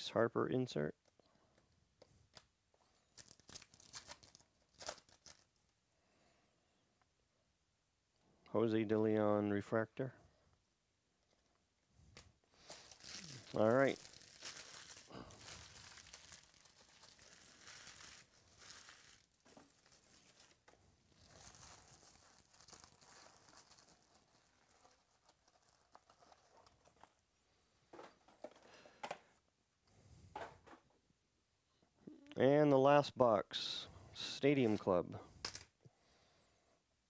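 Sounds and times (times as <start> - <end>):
cardboard packaging rustling: 2.3 - 5.7, 12.5 - 27.2.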